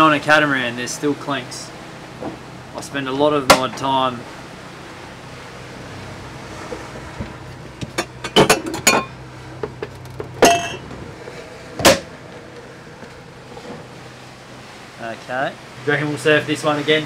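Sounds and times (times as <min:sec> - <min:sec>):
steady low hum: 0:00.0 - 0:17.0
glass and metal mugs clinking: 0:07.9 - 0:09.2, 0:10.4 - 0:10.8.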